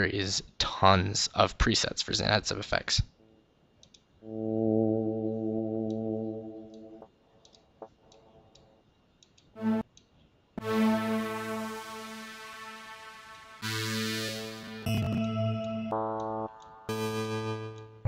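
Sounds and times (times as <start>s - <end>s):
soft mouse clicks: 3.8s - 4.1s, 6.7s - 10.3s
synthesizer held note: 4.2s - 7.0s, 9.6s - 9.8s, 10.6s - 17.7s.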